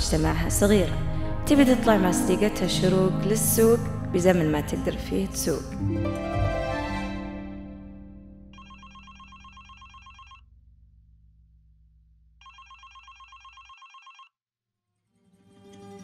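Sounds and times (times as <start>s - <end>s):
held music chord: 1.4s - 8.6s
telephone trilling ring: 8.6s - 10.4s, 12.4s - 14.3s.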